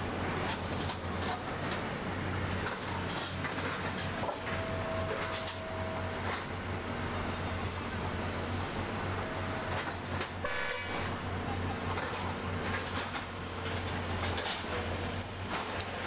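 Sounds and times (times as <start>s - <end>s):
train machinery low drone: 0.0s - 16.0s
horn toot: 10.4s - 11.3s.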